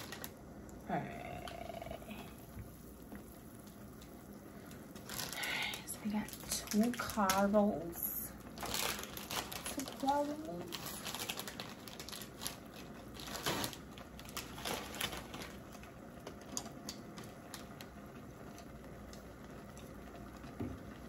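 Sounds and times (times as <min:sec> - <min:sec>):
plastic packets crinkling: 0:00.0 - 0:00.4, 0:04.7 - 0:17.8
faint hiss of water heating: 0:00.0 - 0:21.0.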